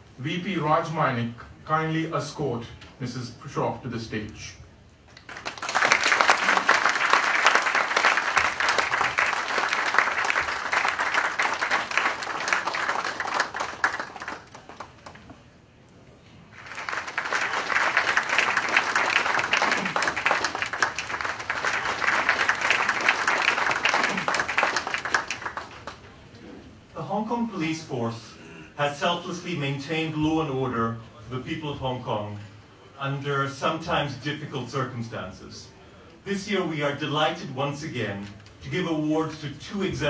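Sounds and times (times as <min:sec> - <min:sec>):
audience applauding: 0:05.2 - 0:15.3, 0:16.6 - 0:26.1.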